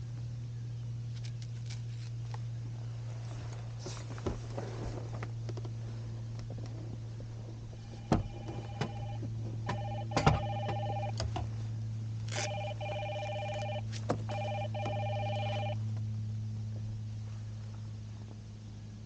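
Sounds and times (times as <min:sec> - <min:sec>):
steady low hum: 0:00.0 - 0:19.0
warbling electronic ringtone: 0:07.8 - 0:11.1, 0:12.4 - 0:15.8.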